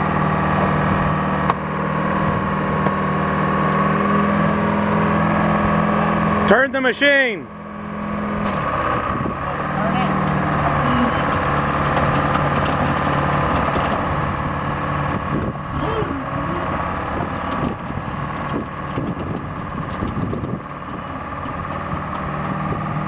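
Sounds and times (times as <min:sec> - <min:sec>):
excavator engine running: 0:00.0 - 0:23.0
metal clanks and knocks: 0:11.2 - 0:14.2.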